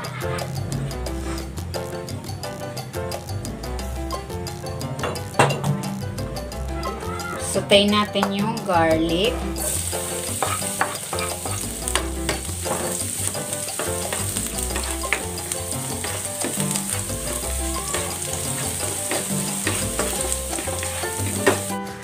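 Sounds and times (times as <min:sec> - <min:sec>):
background music with bass chords: 0:00.0 - 0:22.0
spatula scraping a pan: 0:01.1 - 0:01.6, 0:09.6 - 0:21.9
garlic sizzling in hot oil: 0:09.2 - 0:21.9.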